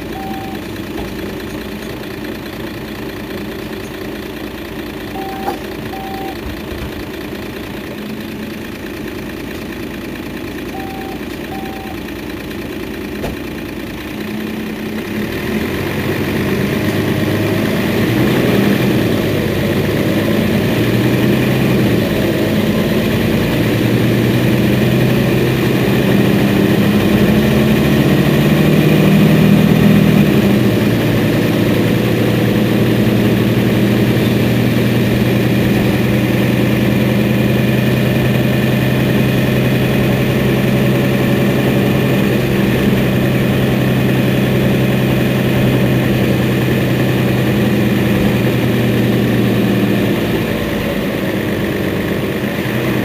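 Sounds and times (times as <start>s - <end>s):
short electronic beeps: 0.0s - 0.8s, 5.1s - 6.6s, 10.7s - 12.1s
bus diesel engine idling: 0.0s - 53.0s.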